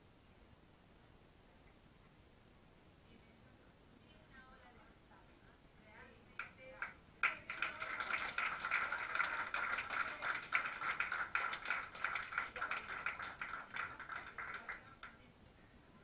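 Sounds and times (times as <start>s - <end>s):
audience applauding: 7.2s - 15.2s.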